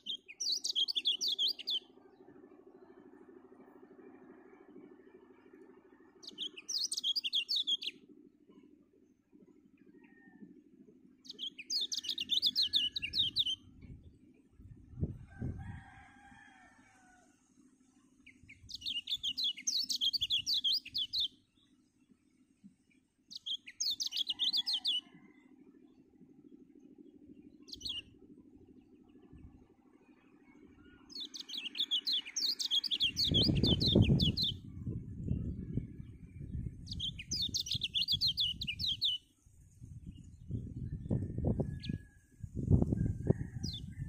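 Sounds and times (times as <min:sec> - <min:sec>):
bird singing high chirps: 0:00.0 - 0:02.0, 0:06.2 - 0:08.1, 0:11.3 - 0:14.0, 0:18.2 - 0:21.4, 0:23.3 - 0:25.3, 0:27.4 - 0:28.2, 0:30.8 - 0:39.3.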